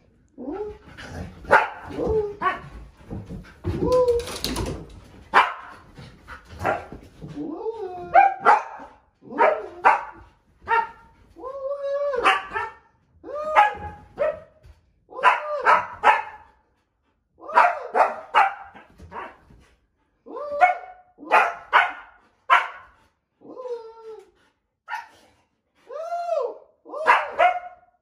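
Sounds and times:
dog barking and yowling: 0:01.5 - 0:02.7, 0:06.6 - 0:06.9, 0:07.9 - 0:14.5, 0:15.2 - 0:16.5, 0:17.4 - 0:19.4, 0:20.3 - 0:22.8, 0:26.0 - 0:27.8.

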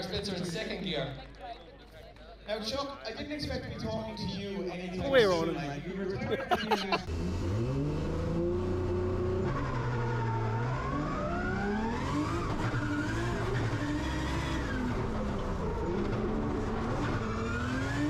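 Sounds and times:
car engine revving hard: 0:07.1 - 0:18.0.

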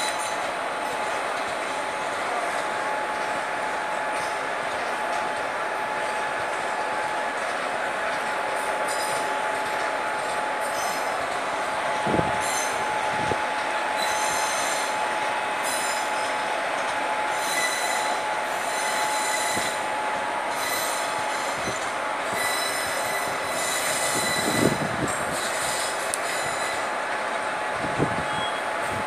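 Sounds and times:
train wheels squealing: 0:00.0 - 0:01.2, 0:08.0 - 0:09.6, 0:10.5 - 0:11.4, 0:12.1 - 0:16.5, 0:17.2 - 0:27.0, 0:28.2 - 0:28.9
train running rumble: 0:00.0 - 0:29.0.

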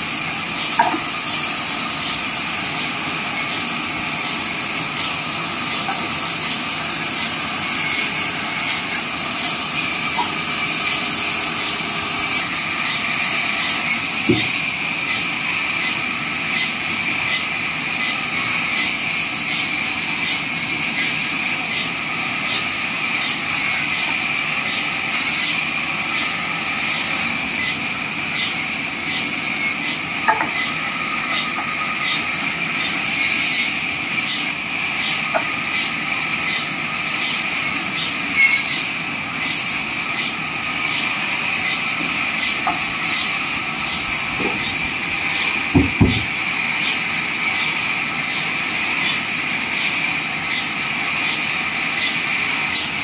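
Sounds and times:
band saw cutting logs: 0:00.0 - 0:53.0
wooden knocks of timber: 0:00.8 - 0:01.1, 0:14.3 - 0:14.6, 0:44.4 - 0:44.9, 0:45.7 - 0:46.4.

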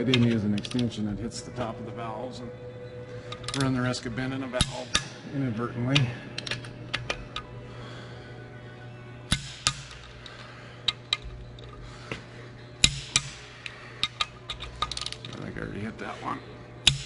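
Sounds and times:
torque wrench clicks: 0:12.8 - 0:13.4, 0:14.0 - 0:15.4
ratchet clicks: 0:14.0 - 0:15.4.

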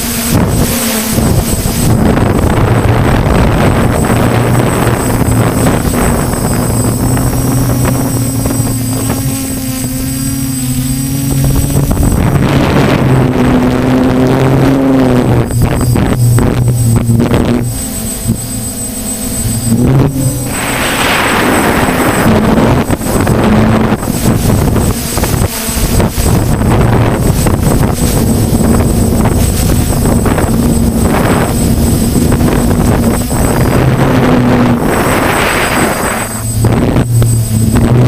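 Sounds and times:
drone motors humming: 0:00.0 - 0:38.0
wind noise on microphone: 0:00.0 - 0:38.0.

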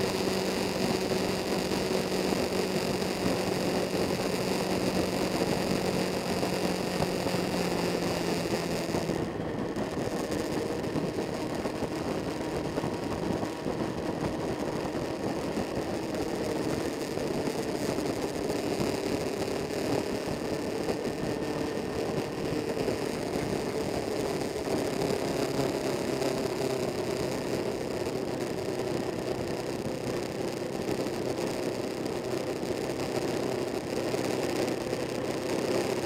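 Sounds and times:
motorcycle engine: 0:00.0 - 0:36.0
wind and road noise: 0:00.0 - 0:36.0.

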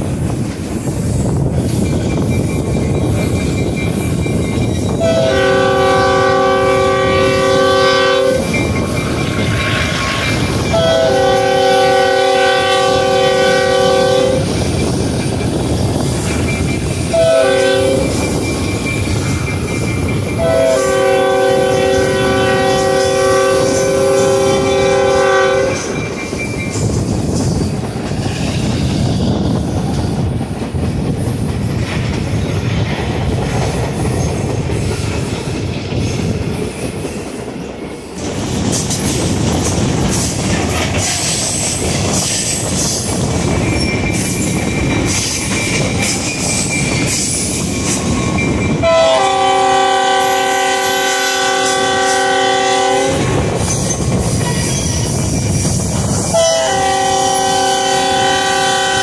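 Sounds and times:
train rumbling on rails: 0:00.0 - 0:59.0
train horn blast: 0:05.0 - 0:08.6, 0:09.4 - 0:14.5, 0:17.1 - 0:18.2, 0:20.4 - 0:26.0, 0:48.8 - 0:53.4, 0:56.2 - 0:59.0
high wheel squeal: 0:41.0 - 0:48.8, 0:53.6 - 0:56.5.

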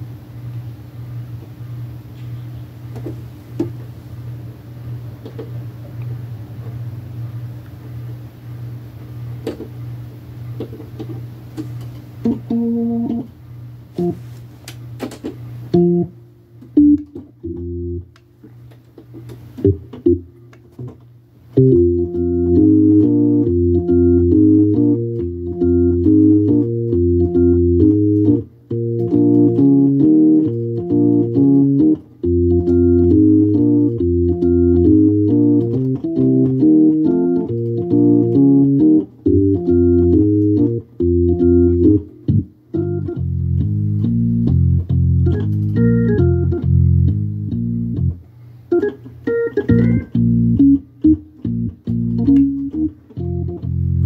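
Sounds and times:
organ low hum and clicks: 0:00.0 - 0:54.0
organ chords over bass line: 0:12.2 - 0:13.3, 0:14.0 - 0:14.3, 0:15.6 - 0:18.1, 0:19.6 - 0:54.0.

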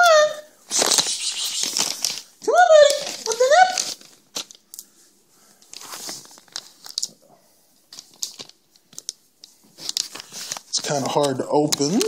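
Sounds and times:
package crinkling and clicking: 0:00.7 - 0:02.3, 0:02.9 - 0:04.9, 0:05.6 - 0:07.2, 0:07.9 - 0:12.0.

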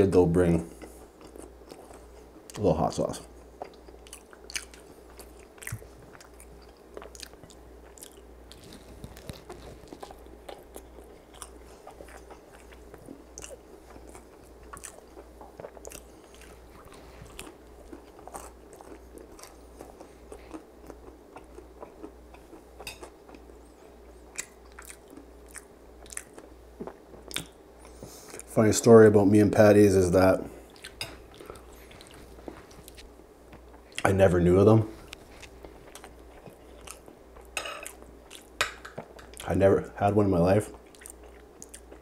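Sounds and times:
crisp pastry chewing: 0:03.6 - 0:23.5.

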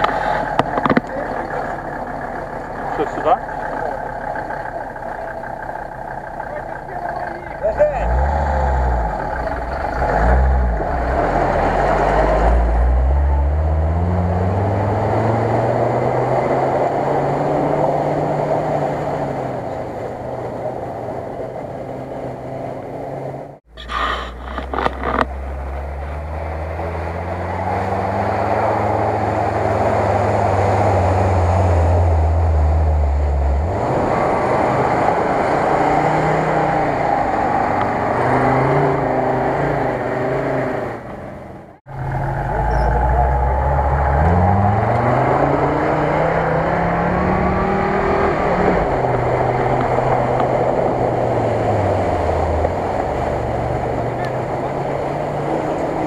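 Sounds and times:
off-road vehicle engine revving: 0:00.0 - 0:56.0
vehicle driving through water: 0:25.2 - 0:40.8, 0:41.9 - 0:56.0.

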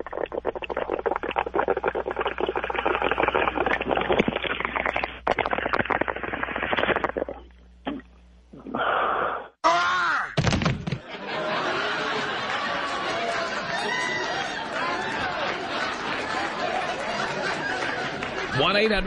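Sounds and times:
water bubbling through a bong: 0:00.0 - 0:09.6.

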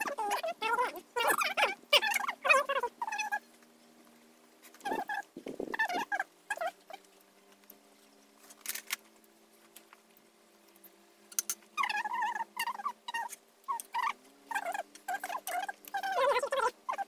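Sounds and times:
high warbling animal calls: 0:00.0 - 0:03.5, 0:04.8 - 0:07.0, 0:11.8 - 0:17.0.

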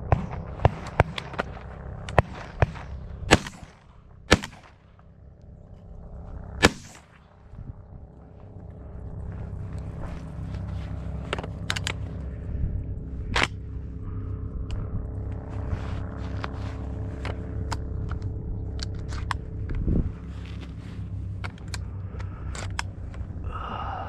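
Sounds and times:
shotgun shots with echo: 0:00.0 - 0:01.5, 0:02.1 - 0:04.8, 0:06.6 - 0:07.2
steady low rumble: 0:00.0 - 0:24.0.

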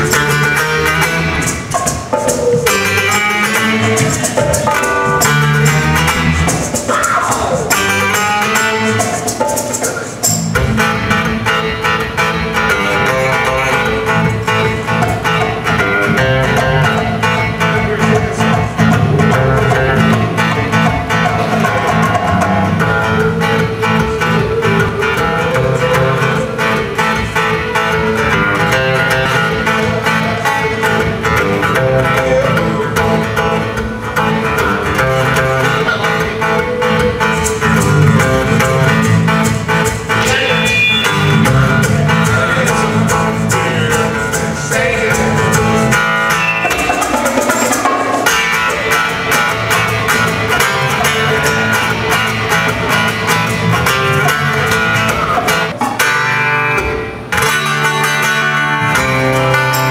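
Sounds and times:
live rock band playing: 0:00.0 - 0:59.9.

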